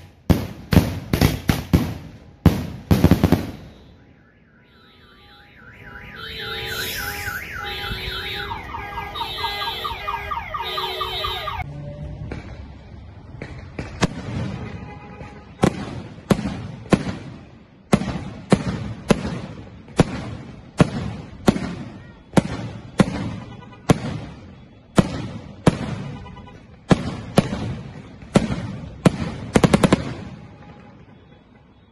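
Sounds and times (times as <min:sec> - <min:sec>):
firework bangs with echo: 0:00.0 - 0:03.8, 0:13.3 - 0:30.8.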